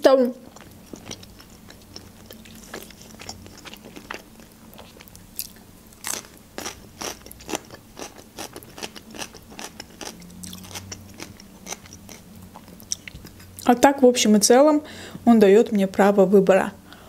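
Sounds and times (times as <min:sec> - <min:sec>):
crunchy chewing: 0:00.4 - 0:13.7.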